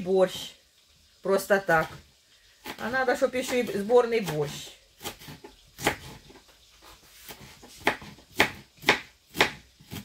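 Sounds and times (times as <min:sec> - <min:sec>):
knife chopping on wooden board: 0:05.0 - 0:06.4, 0:07.2 - 0:10.0.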